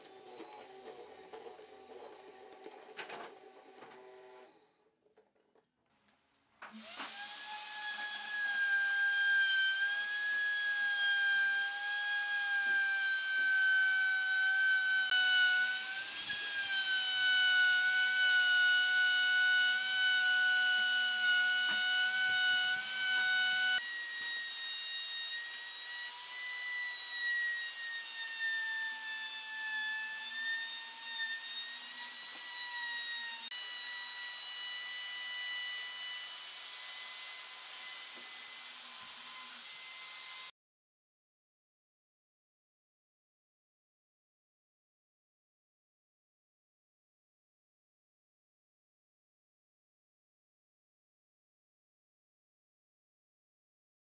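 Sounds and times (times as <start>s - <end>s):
electric router whining: 13.0s - 27.4s.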